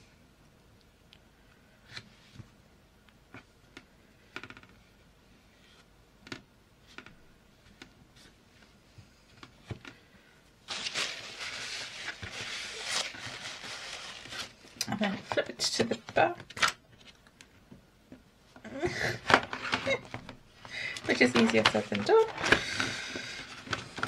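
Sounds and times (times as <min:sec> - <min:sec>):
paper rustling: 0:10.7 - 0:17.2, 0:21.0 - 0:24.0.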